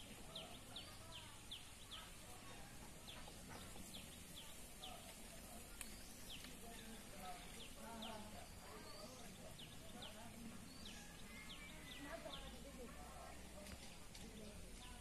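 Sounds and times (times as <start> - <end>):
bird chirping: 0.0 - 15.0
faint click: 5.7 - 6.6.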